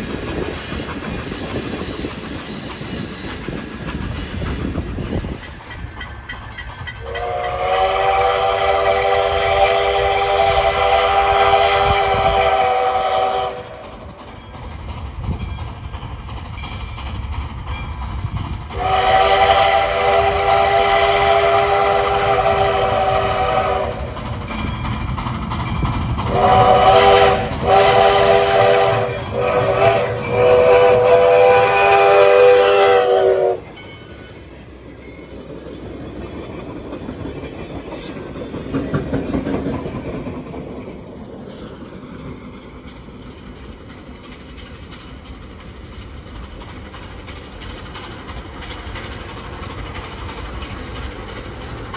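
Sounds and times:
steam locomotive chime whistle: 0.0 - 14.6, 18.7 - 25.0, 25.7 - 35.4
train rumbling on rails: 0.0 - 51.9.

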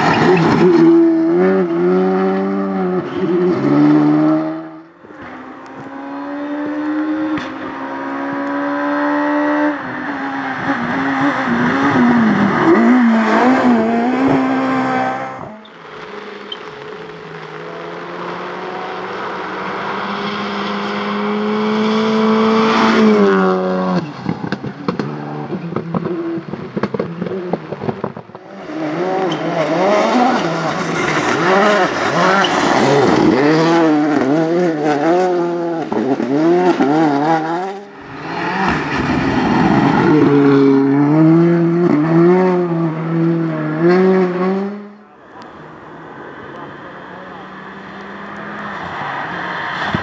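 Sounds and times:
rally car engines revving: 0.0 - 50.0
exhaust pops and bangs: 24.2 - 28.4.

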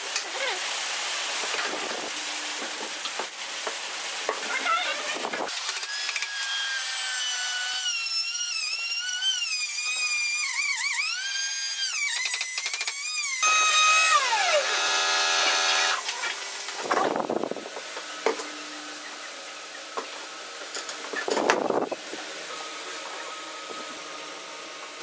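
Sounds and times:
router motor whining: 5.5 - 16.4.

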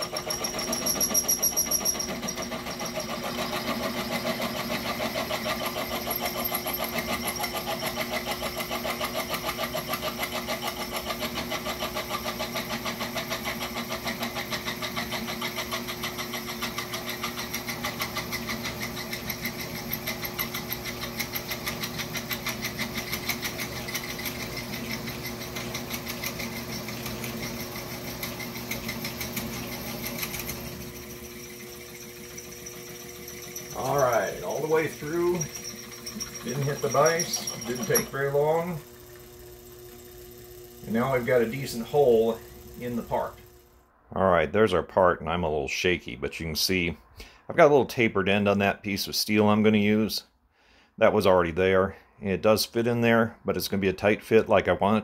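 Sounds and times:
drill bit chattering in metal: 0.0 - 43.4
milling machine motor hum: 0.0 - 43.8.

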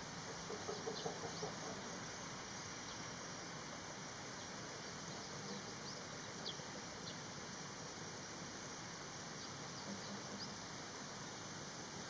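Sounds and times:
outdoor background hiss: 0.0 - 12.0
faint bird chirps: 9.4 - 10.6.

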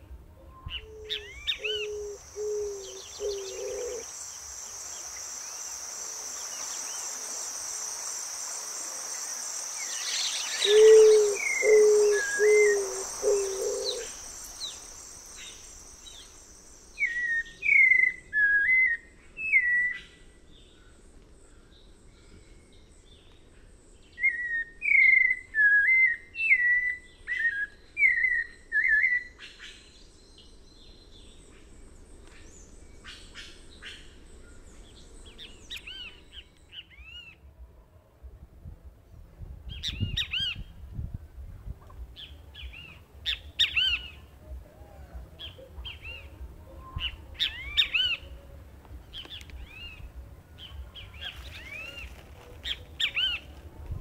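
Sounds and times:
pulsing insect drone: 1.8 - 17.1
whistled songbird phrases: 9.8 - 20.2, 42.2 - 53.5.

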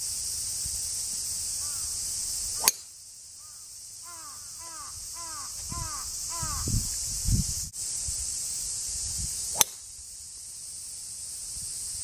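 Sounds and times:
high insect drone: 0.0 - 12.0
crow cawing: 1.6 - 1.9, 3.4 - 6.7
golf club striking ball: 2.6 - 2.9, 9.5 - 9.8.

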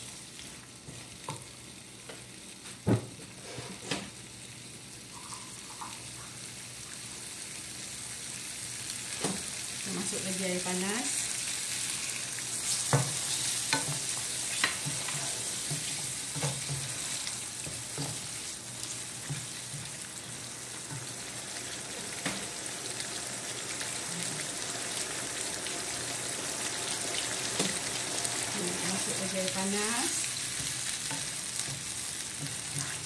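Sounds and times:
sauce bubbling in a pan: 11.0 - 33.0.

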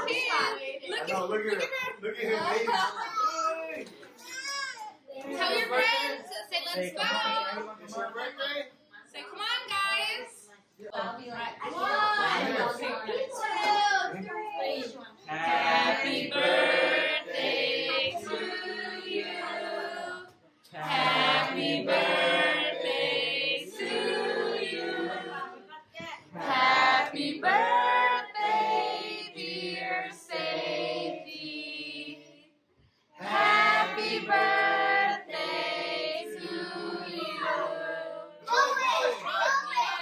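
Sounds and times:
choir singing: 15.3 - 25.7, 26.3 - 32.6, 33.2 - 38.4.

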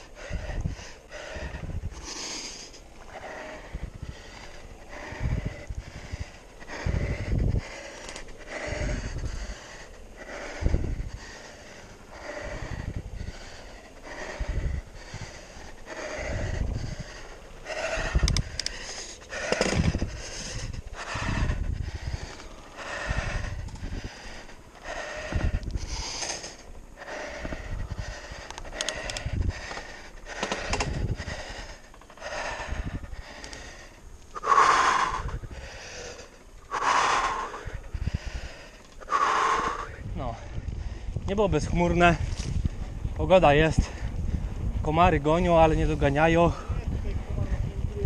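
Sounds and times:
person breathing hard: 0.0 - 43.1, 43.7 - 44.8, 45.8 - 47.9
tyre and wind rumble: 0.0 - 48.0
bike rolling over dirt: 11.3 - 34.4
sharp clicks: 18.1 - 20.0, 28.3 - 31.0.

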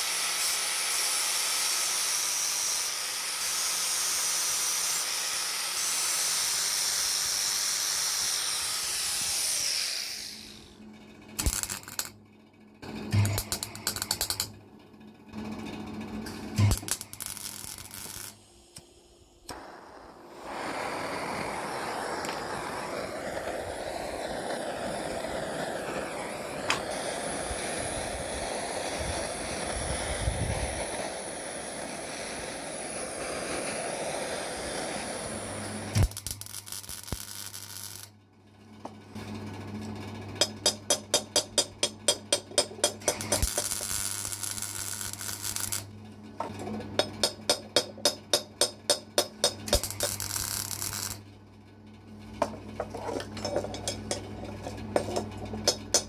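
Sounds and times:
gas torch flame hissing: 0.0 - 10.8, 13.1 - 14.5, 16.3 - 38.1, 40.4 - 51.2, 52.4 - 56.0
low hum: 9.0 - 36.7.

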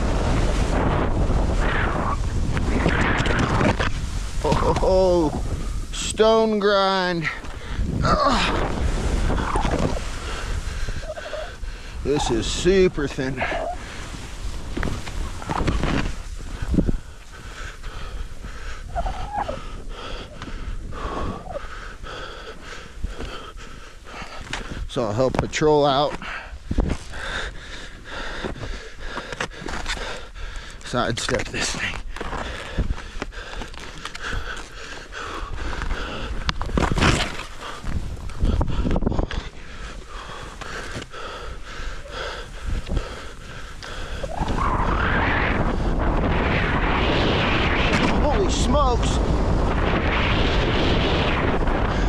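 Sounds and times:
skis scraping crusty snow: 0.0 - 19.7, 30.8 - 52.0
wind rushing on microphone: 0.0 - 52.0
skier breathing hard: 7.2 - 25.0, 26.1 - 30.9, 31.7 - 48.3, 49.2 - 52.0.

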